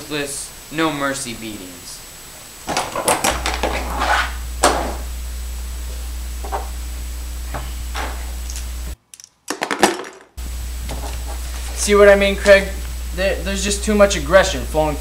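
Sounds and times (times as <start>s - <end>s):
steady low hum: 0.0s - 9.0s, 10.4s - 15.0s
object dropping into plastic wastebasket: 9.5s - 10.3s.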